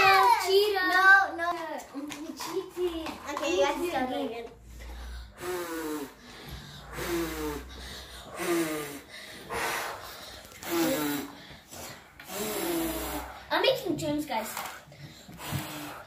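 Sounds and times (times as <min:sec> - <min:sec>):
children blowing puffs of breath: 0:04.6 - 0:13.6, 0:14.6 - 0:16.0.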